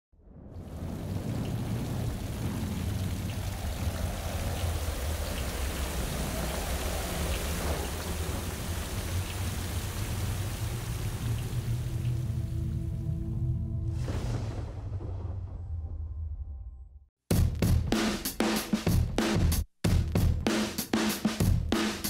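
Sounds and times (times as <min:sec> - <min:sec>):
low rumble: 0:00.1 - 0:17.1
steady rain hiss: 0:00.6 - 0:13.0.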